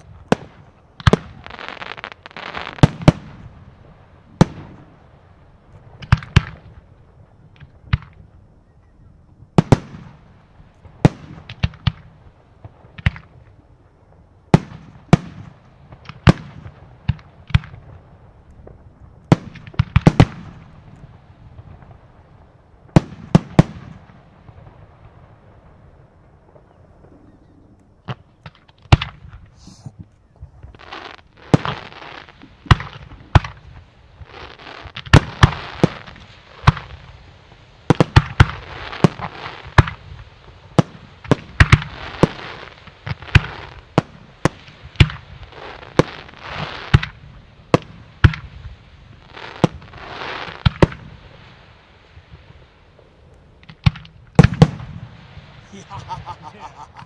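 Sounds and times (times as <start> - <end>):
fireworks bangs: 0.0 - 8.4, 9.5 - 57.0
fireworks hissing and crackling: 0.0 - 57.0.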